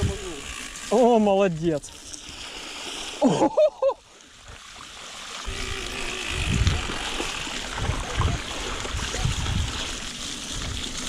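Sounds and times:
bicycle tyres hissing through water: 0.0 - 11.0
wind buffeting microphone: 5.5 - 11.0.

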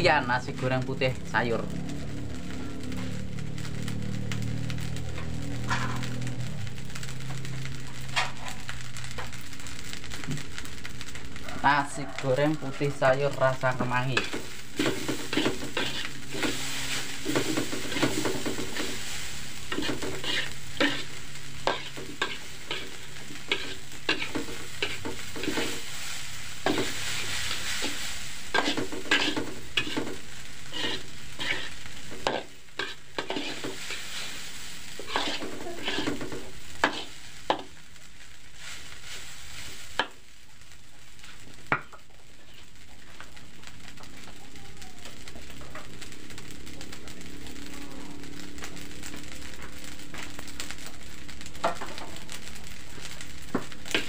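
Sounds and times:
rice sizzling: 0.0 - 54.0
metal spatula scraping a wok: 5.5 - 6.2, 12.9 - 37.8, 41.2 - 43.0, 53.0 - 54.0.

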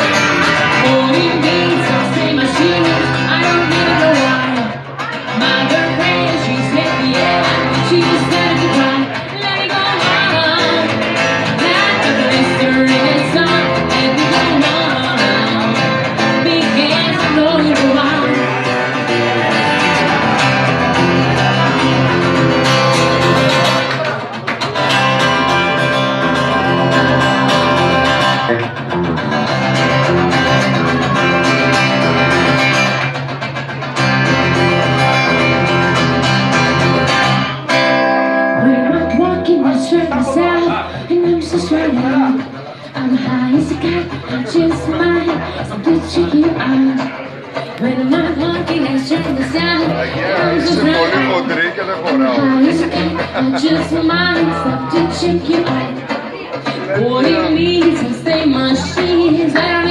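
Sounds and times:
woman singing: 0.0 - 18.8, 38.4 - 51.4, 52.1 - 59.9
acoustic guitar: 0.0 - 59.9.

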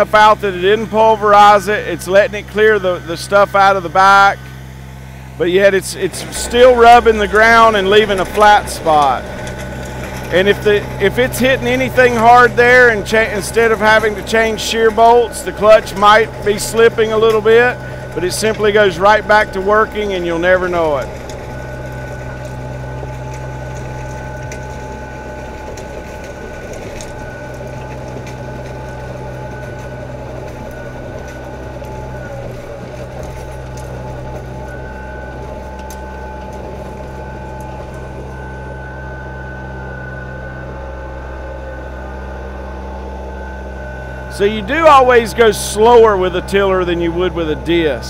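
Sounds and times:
thin high whine: 0.0 - 48.0
tractor diesel engine running: 0.0 - 48.0.

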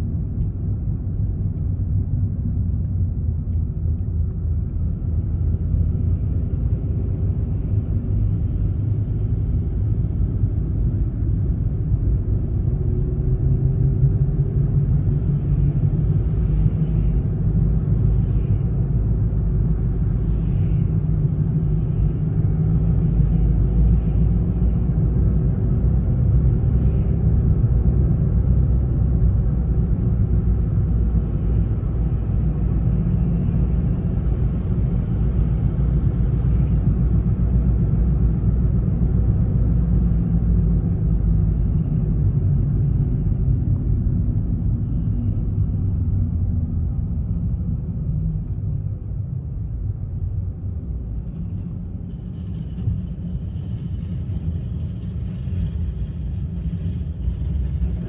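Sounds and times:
car engine and tyre rumble: 0.0 - 58.0.

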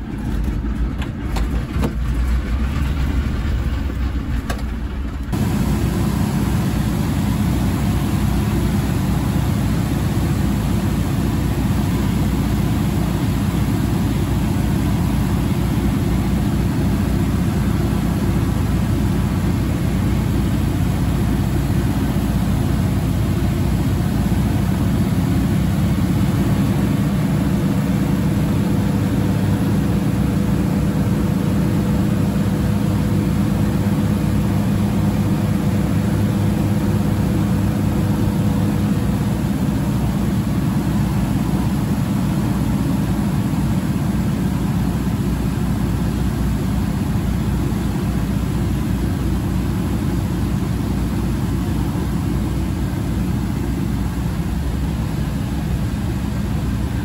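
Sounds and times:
aircraft engines and propellers droning: 0.0 - 57.0.

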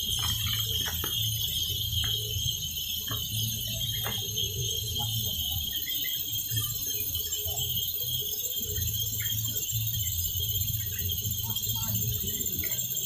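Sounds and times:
faint chirps: 0.0 - 13.0
insect buzzing: 0.0 - 13.0.

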